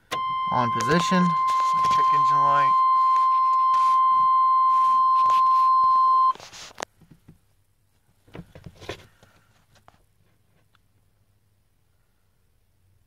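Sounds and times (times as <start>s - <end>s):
high warning beep: 0.1s - 6.4s.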